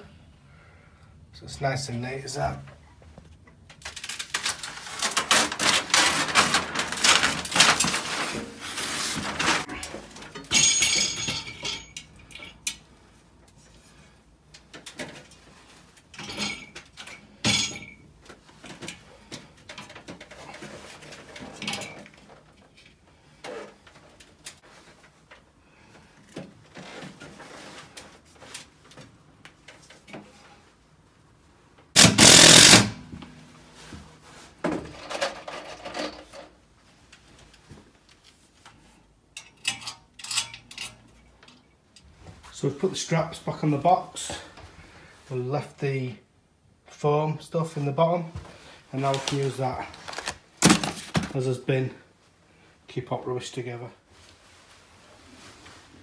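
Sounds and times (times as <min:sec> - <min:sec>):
rustling and scraping: 0:02.7 - 0:11.9, 0:18.2 - 0:30.8, 0:33.2 - 0:39.1, 0:48.3 - 0:51.6, 0:54.0 - 0:56.0.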